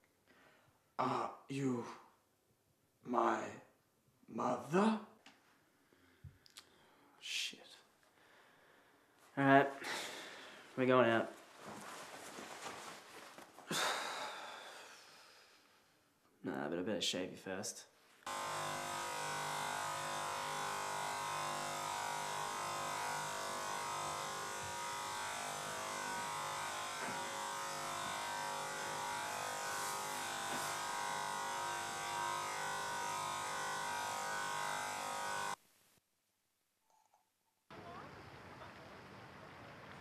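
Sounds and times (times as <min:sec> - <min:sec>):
electric shaver buzzing: 0:18.2 - 0:35.6.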